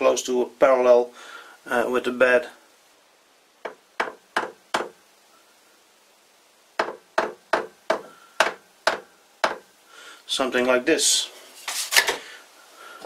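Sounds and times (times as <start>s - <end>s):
hammer tapping on metal: 3.6s - 5.0s, 6.8s - 9.6s.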